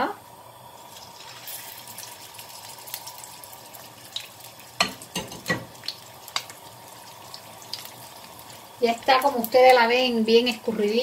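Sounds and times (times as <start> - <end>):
pork sizzling in hot oil: 0.0 - 11.0.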